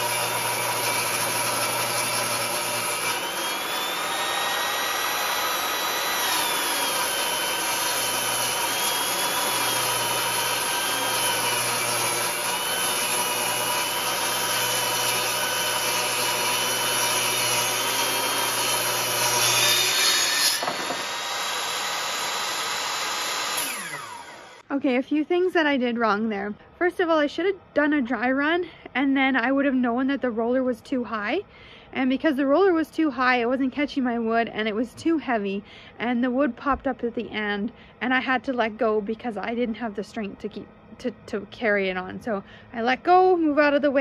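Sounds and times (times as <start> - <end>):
table saw cutting wood: 0.0 - 24.7
board popping off saw blade: 0.1 - 24.3.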